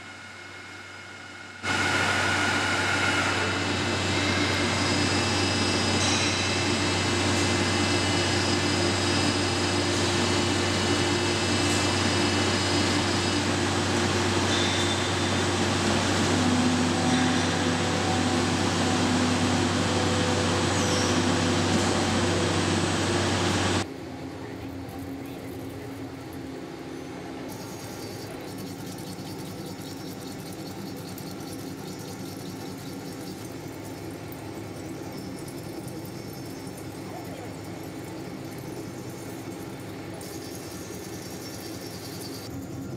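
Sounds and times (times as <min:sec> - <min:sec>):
metal cutting machine hum and whine: 0:00.0 - 0:42.9.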